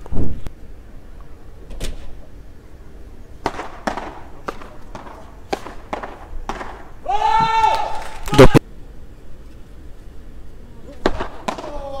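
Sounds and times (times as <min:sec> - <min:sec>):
paddles striking ball: 0:03.4 - 0:06.9.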